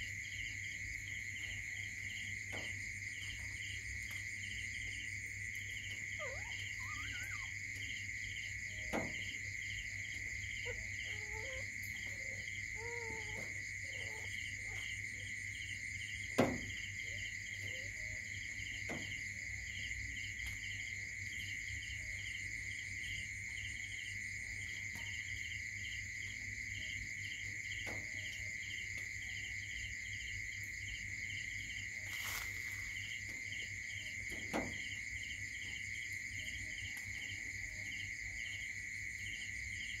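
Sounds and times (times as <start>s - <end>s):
crickets chirping: 0.0s - 40.0s
faint wavering squeaks: 6.1s - 7.5s.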